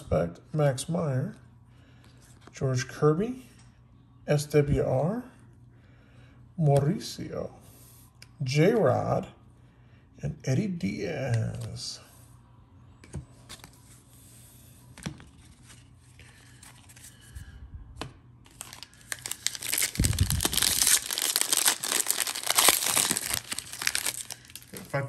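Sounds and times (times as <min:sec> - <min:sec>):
plastic wrapper crinkling and tearing: 0:18.4 - 0:25.0.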